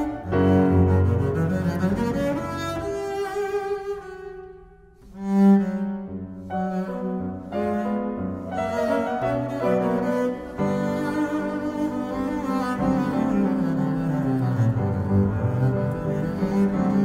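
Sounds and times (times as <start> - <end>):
bowed double bass: 0.0 - 17.0
grand piano playing: 0.0 - 17.0.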